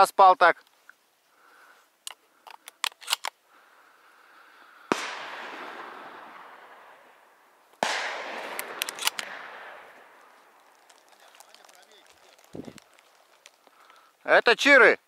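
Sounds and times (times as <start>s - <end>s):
sharp clicks: 2.0s - 3.4s, 8.5s - 9.4s
shotgun shots with echo: 4.9s - 7.1s, 7.8s - 10.2s.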